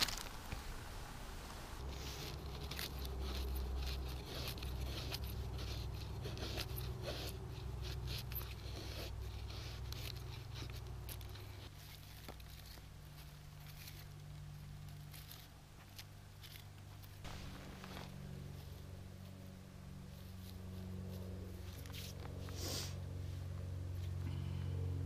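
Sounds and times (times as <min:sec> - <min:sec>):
low steady rumble: 0:00.0 - 0:25.0
knife shaving wood: 0:01.8 - 0:17.3, 0:20.1 - 0:23.0.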